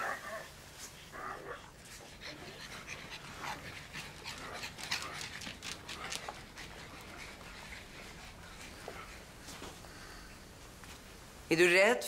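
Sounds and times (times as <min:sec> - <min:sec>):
dog whimpering and panting: 0:01.5 - 0:09.6.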